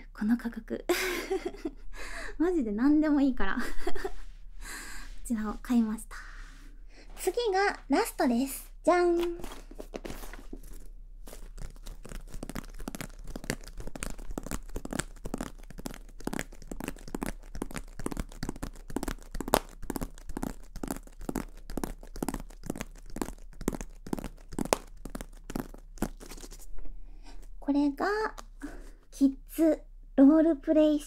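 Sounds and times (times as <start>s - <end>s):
scratchy rubbing: 9.2s - 26.9s.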